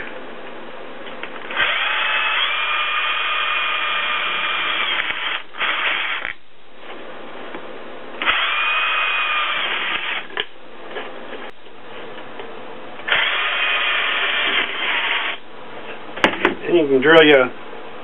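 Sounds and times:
cordless drill whining through can: 1.5s - 6.4s, 8.2s - 10.3s, 13.1s - 15.4s.

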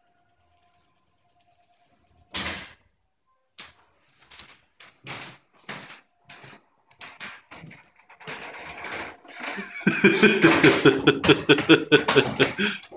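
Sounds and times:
person laughing loudly: 9.3s - 12.9s.

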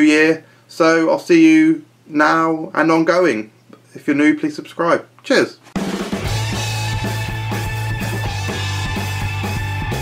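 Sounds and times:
upbeat rock music: 5.8s - 10.0s.

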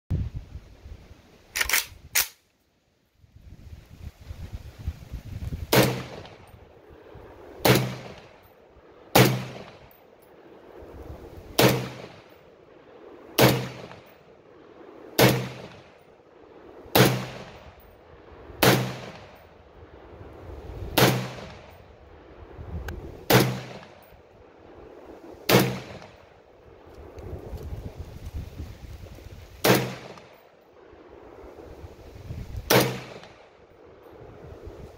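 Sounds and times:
sharp cracks: 1.5s - 2.5s, 11.6s - 12.3s, 15.2s - 16.0s, 16.9s - 17.7s, 23.2s - 24.0s, 25.5s - 26.2s, 29.6s - 30.4s, 32.7s - 33.5s
rifle shots echoing: 5.7s - 6.5s, 7.6s - 8.4s, 9.1s - 9.9s, 11.6s - 12.3s, 13.4s - 14.1s, 15.2s - 16.0s, 16.9s - 17.7s, 18.6s - 19.4s, 21.0s - 21.7s, 23.2s - 24.0s, 25.5s - 26.2s, 29.6s - 30.4s, 32.7s - 33.5s.

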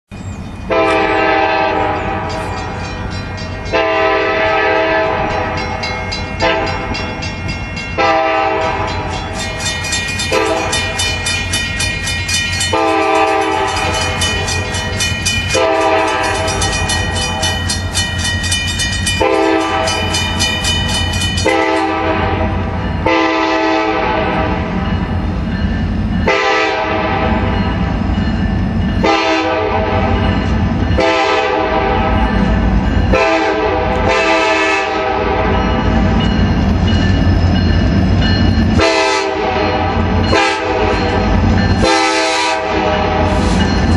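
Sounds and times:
freight train rumble: 0.1s - 43.9s
locomotive air horn blasts: 0.7s - 2.4s, 3.7s - 5.7s, 6.4s - 7.0s, 8.0s - 9.1s, 10.3s - 10.9s, 12.7s - 14.2s, 15.5s - 16.6s, 19.2s - 20.1s, 21.4s - 24.7s, 26.3s - 27.5s, 29.0s - 30.2s, 31.0s - 32.2s, 33.1s - 35.7s, 38.8s - 41.2s, 41.8s - 43.6s.

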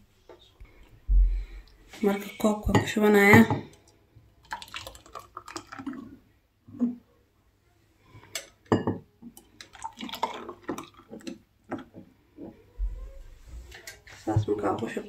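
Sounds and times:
thick liquid pouring and dripping: 3.7s - 7.0s, 9.2s - 12.1s
glass bowl clinking against glasses: 8.4s - 9.1s.

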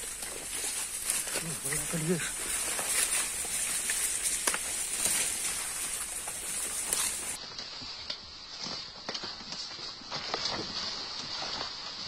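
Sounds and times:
steady high hiss: 0.0s - 8.5s
twigs crackling and snapping: 0.0s - 11.8s
leaves rustling underfoot: 0.0s - 12.0s.

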